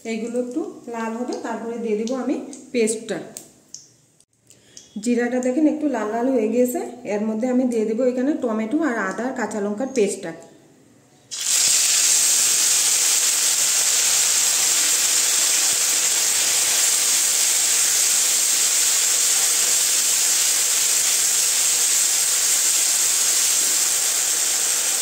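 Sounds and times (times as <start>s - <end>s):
paste sizzling in hot oil: 11.3s - 25.0s.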